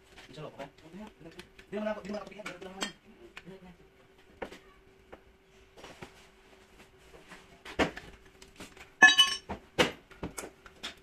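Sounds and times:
ringing metallic clink: 9.0 - 9.4
tools knocking and clinking: 9.0 - 9.6.

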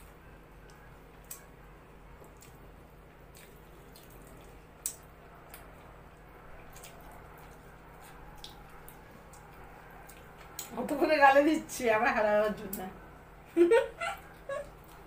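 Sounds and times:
wet clicks and squishes of eating: 0.0 - 1.6, 2.2 - 10.9, 14.2 - 15.0
faint room hum: 0.0 - 15.0.

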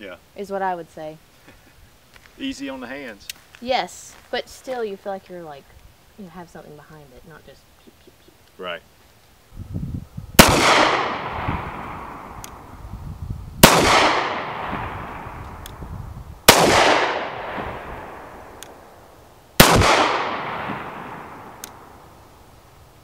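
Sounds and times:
gunshot echo: 10.4 - 12.5, 13.6 - 15.5, 16.5 - 18.6, 19.6 - 22.0
pistol shots: 10.4 - 12.6, 13.6 - 15.8, 16.5 - 18.8, 19.6 - 21.9.

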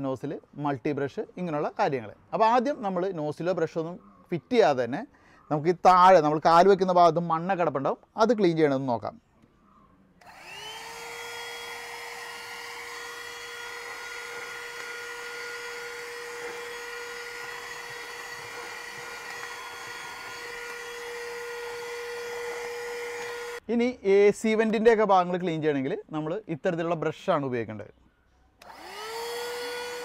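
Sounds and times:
handheld vacuum motor whine: 10.2 - 23.6, 28.6 - 30.0
vacuuming sand: 10.3 - 23.6.

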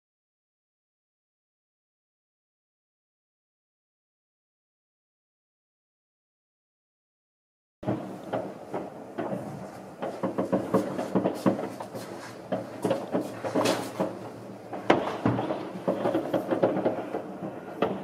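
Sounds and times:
fireworks bangs and crackle: 7.8 - 18.0.

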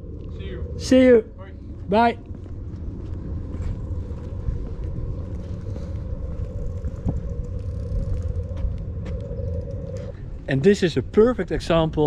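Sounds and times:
low rumble: 0.0 - 12.0
mid-pitched machinery hum: 0.0 - 12.0
faint clicks: 6.5 - 10.2.

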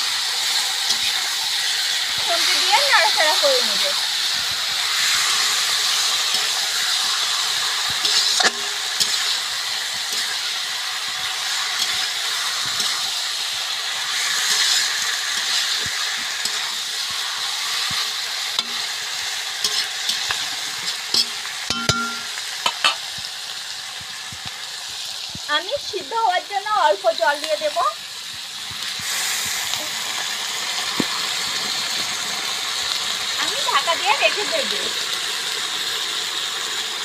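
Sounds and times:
meat sizzling in oil: 0.0 - 37.0
spatula scraping a pan: 4.8 - 10.6, 14.0 - 18.9, 19.6 - 22.0.

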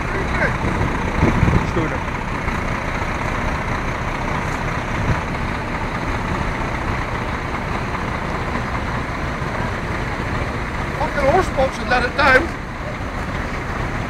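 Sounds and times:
diesel engines idling: 0.0 - 14.0.

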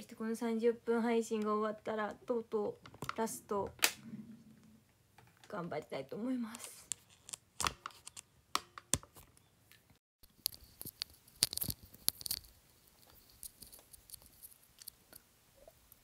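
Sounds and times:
handling clicks and rustles: 6.6 - 15.3.

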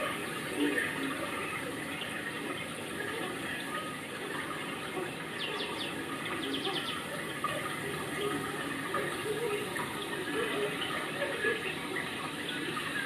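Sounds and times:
running water: 0.0 - 13.0
small bird calling: 5.4 - 7.1.

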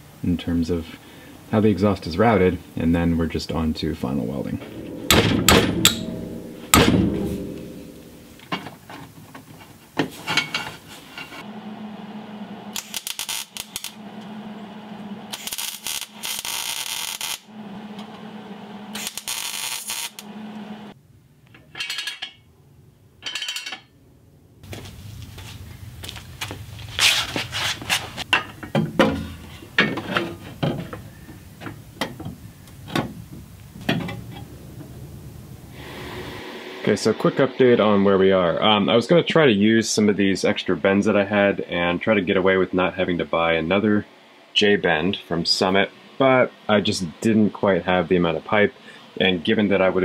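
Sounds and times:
metal clanks and taps: 4.9 - 11.4, 28.3 - 31.0, 31.6 - 33.1
welder crackling: 11.8 - 18.2, 18.9 - 20.9.

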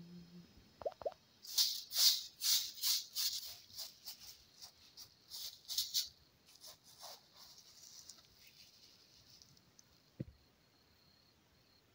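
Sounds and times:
dry husks rustling and crackling: 1.5 - 10.2.

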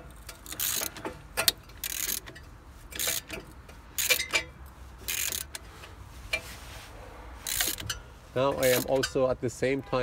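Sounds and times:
ratchet wrench clicking: 0.1 - 5.7, 7.4 - 8.0, 8.6 - 9.2.

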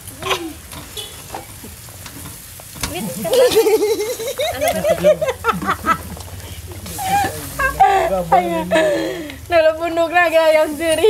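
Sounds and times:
food sizzling on grill pan: 0.0 - 11.0
people talking: 2.8 - 11.0.

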